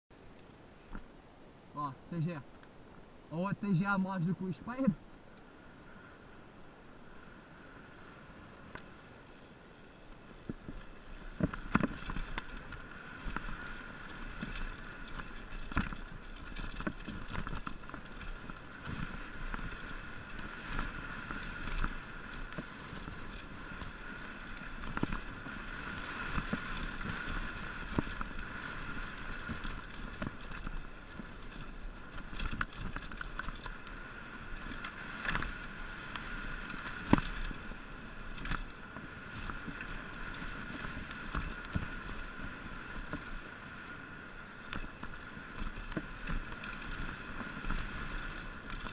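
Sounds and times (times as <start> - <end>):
bike knocking and rattling: 10.2 - 43.3, 44.6 - 48.9.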